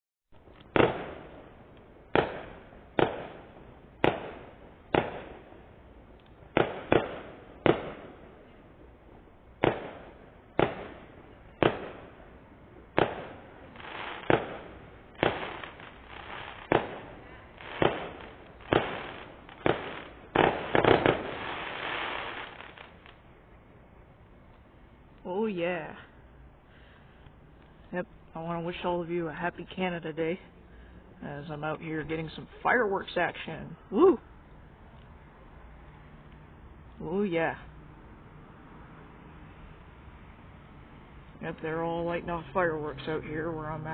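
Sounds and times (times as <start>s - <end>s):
fireworks bangs: 0.5s - 5.6s, 6.3s - 8.8s, 9.6s - 23.2s.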